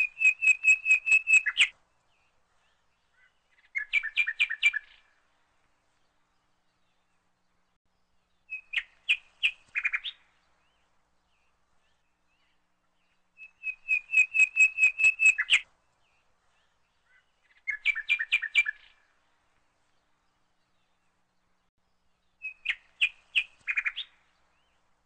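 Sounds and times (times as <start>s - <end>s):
small bird chirping: 0.0s - 1.7s, 2.7s - 5.1s, 8.3s - 15.7s, 16.6s - 19.1s, 22.2s - 24.8s.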